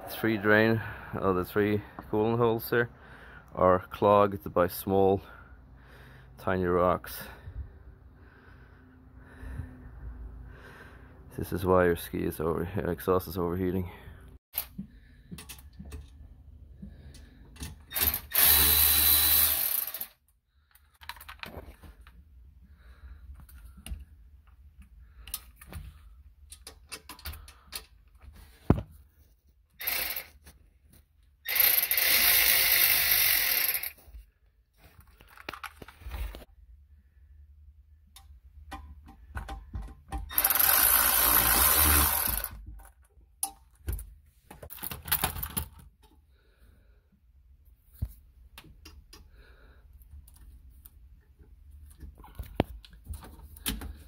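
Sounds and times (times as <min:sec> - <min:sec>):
cordless power ratchet spinning: 0:17.9 - 0:20.2, 0:29.8 - 0:30.4, 0:31.5 - 0:34.0, 0:40.3 - 0:42.6.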